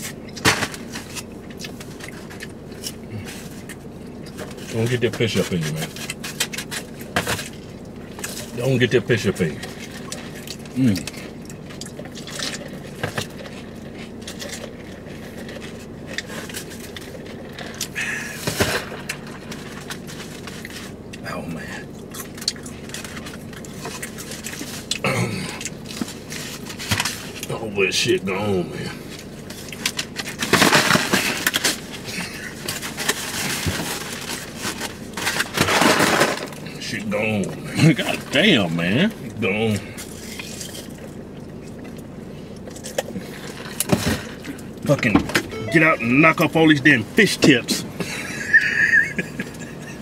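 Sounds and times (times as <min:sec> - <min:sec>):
food containers clicking and scraping: 0:00.0 - 0:21.1, 0:22.0 - 0:25.0, 0:25.6 - 0:27.5, 0:29.0 - 0:36.7, 0:40.0 - 0:45.5
steady low hum: 0:00.0 - 0:50.0
chewing: 0:09.6 - 0:18.0, 0:21.8 - 0:27.4, 0:40.0 - 0:44.8.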